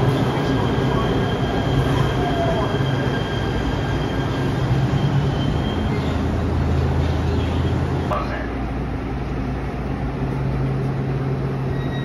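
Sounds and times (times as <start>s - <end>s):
train wheel squeal: 0.0s - 6.4s, 11.6s - 12.0s
train low hum: 0.0s - 12.0s.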